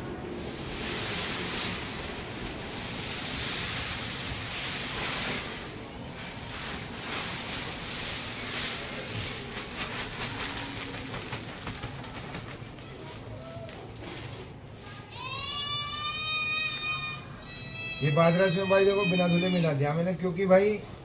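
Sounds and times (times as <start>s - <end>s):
grain pouring from sack: 0.4s - 11.9s
patter of grains: 6.2s - 15.0s.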